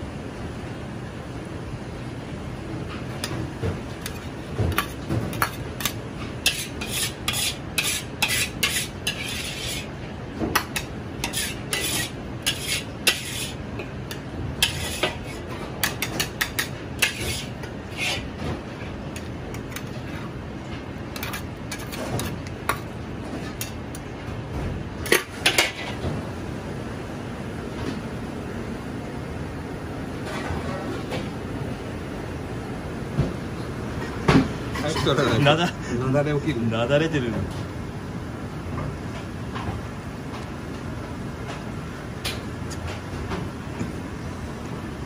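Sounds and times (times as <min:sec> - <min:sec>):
low background noise: 0:00.0 - 0:45.0
utensils scraping a wok: 0:04.0 - 0:10.0, 0:10.6 - 0:18.4, 0:21.2 - 0:22.5.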